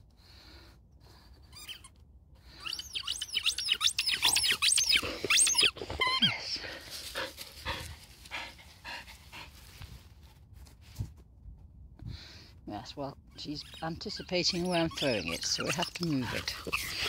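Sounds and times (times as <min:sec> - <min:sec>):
dog squealing: 0:01.5 - 0:01.9, 0:02.5 - 0:06.4, 0:13.5 - 0:17.0
dog panting: 0:06.6 - 0:10.0, 0:13.8 - 0:17.0.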